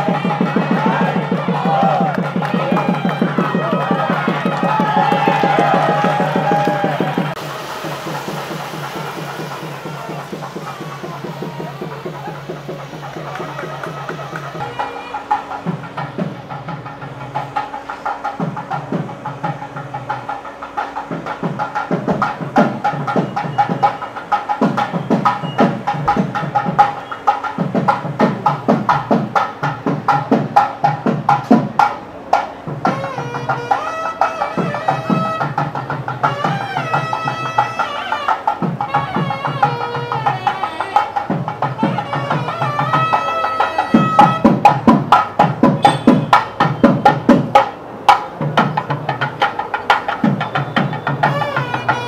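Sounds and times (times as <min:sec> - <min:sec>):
reedy wind instrument melody: 0:00.0 - 0:27.6, 0:32.7 - 0:52.0
fast dense drumming: 0:00.0 - 0:33.1, 0:38.5 - 0:52.0.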